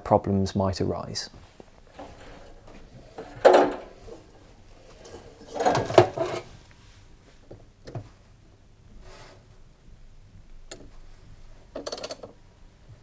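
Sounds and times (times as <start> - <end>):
panels sliding and knocking: 1.5 - 6.6.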